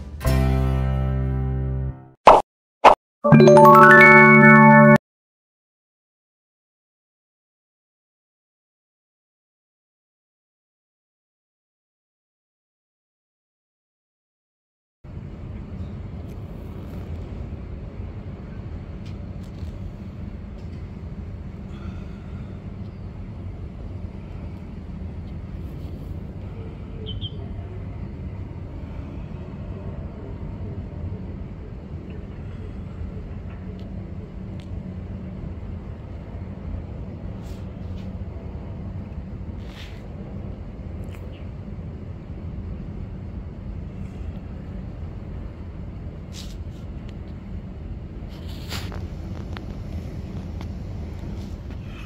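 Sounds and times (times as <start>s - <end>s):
city background rumble: 15.1s - 52.0s.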